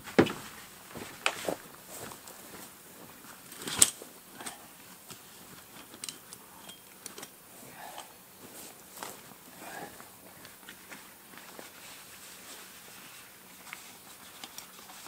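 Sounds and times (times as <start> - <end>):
folding chair frame clicks: 3.6 - 4.6.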